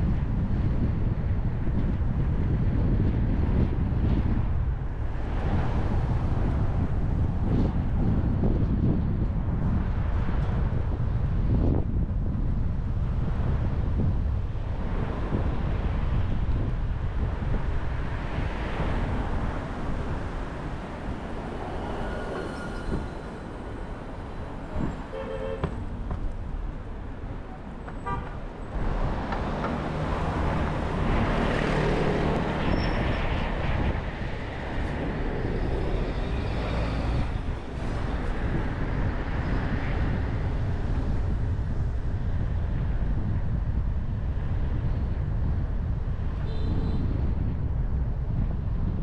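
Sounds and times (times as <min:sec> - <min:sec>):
road traffic rumble: 0:00.0 - 0:49.0
car horn toot: 0:25.1 - 0:25.9, 0:28.0 - 0:28.4.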